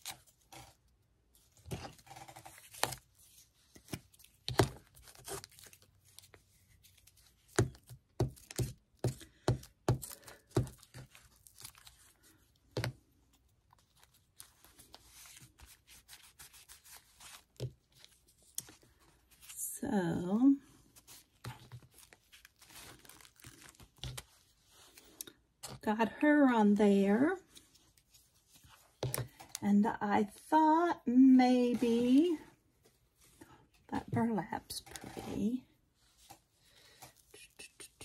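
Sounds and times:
paper rustling: 0:13.7 - 0:19.6, 0:20.8 - 0:25.8.

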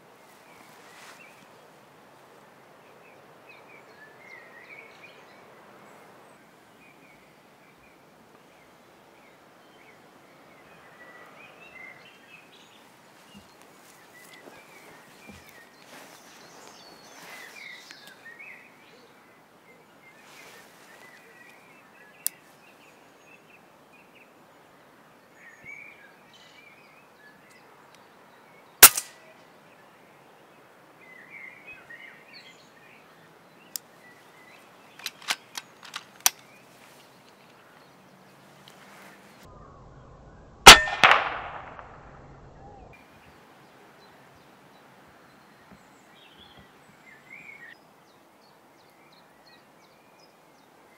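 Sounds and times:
air rifle shots: 0:28.8 - 0:29.2, 0:40.6 - 0:42.1
sharp clicks: 0:28.8 - 0:29.2, 0:35.0 - 0:36.4.

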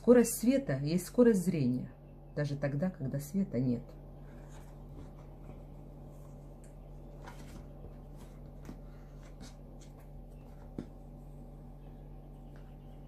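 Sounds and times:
steady low hum: 0:00.0 - 0:13.0
paper rustling: 0:04.2 - 0:11.0
notebook handling noises: 0:04.2 - 0:11.2.

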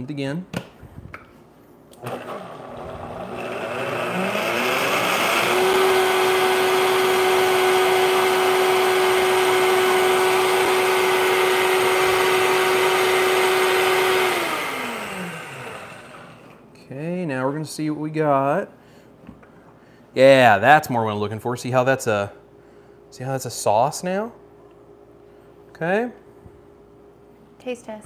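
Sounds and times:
blender motor whining: 0:02.0 - 0:16.6.

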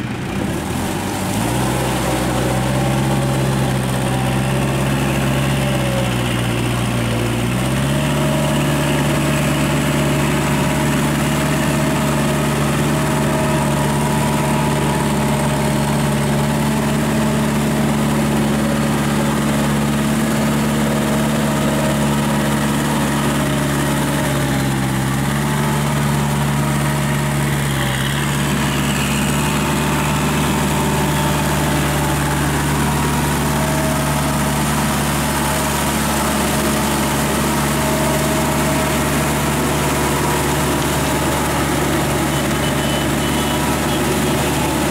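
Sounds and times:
tractor diesel engine running: 0:00.0 - 0:44.9.

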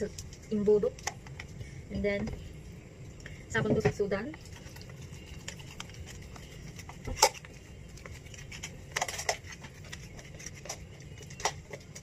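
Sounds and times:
low steady hum: 0:00.0 - 0:12.0
plastic funnel clicking and crackling: 0:04.4 - 0:12.0.

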